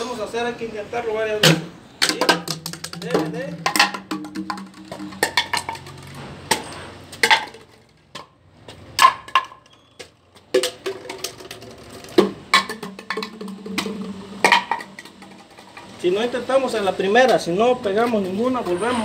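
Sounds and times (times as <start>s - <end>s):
plastic bottles clattering on concrete: 1.4s - 16.0s.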